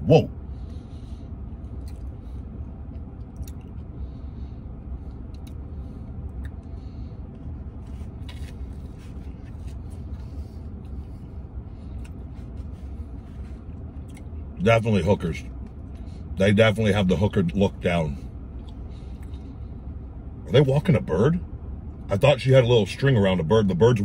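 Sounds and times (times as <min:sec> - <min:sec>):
vehicle cabin rumble: 0:00.0 - 0:24.0
man chewing sandwich: 0:00.4 - 0:14.6, 0:15.5 - 0:16.4, 0:18.2 - 0:20.2.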